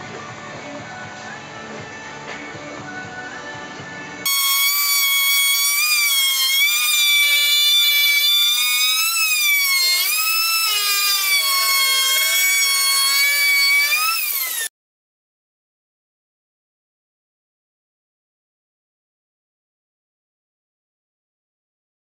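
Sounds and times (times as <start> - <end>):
wood router whining: 4.3 - 14.7.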